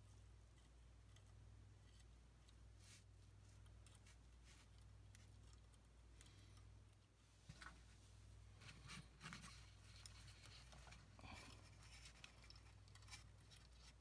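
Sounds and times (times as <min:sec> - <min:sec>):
faint low hum: 0:00.0 - 0:14.0
scratchy rustles of wires: 0:06.9 - 0:14.0.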